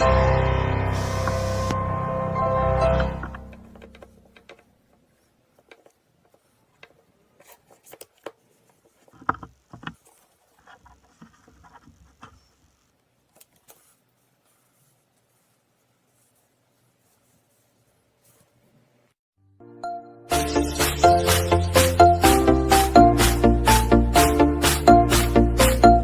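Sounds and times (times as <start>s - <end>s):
fabric rustling: 3.6s - 19.2s.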